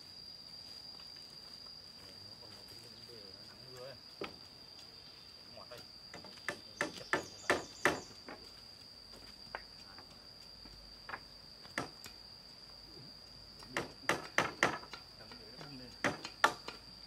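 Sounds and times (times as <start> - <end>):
high-pitched insect drone: 0.0 - 17.0
hammer nailing wood: 6.5 - 8.1, 13.8 - 15.0, 16.0 - 16.8.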